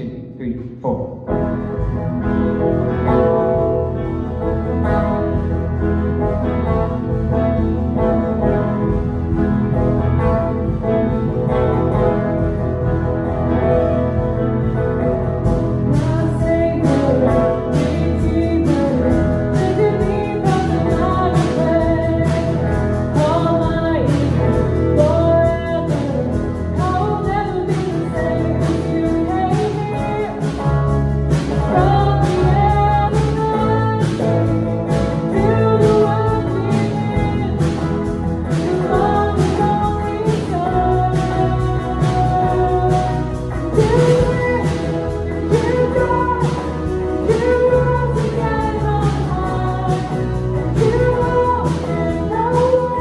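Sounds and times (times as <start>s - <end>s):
bass guitar: 0.0s - 53.0s
keyboards: 0.0s - 53.0s
drum kit beat: 0.8s - 53.0s
electric guitar: 0.9s - 53.0s
woman singing lead: 1.3s - 53.0s.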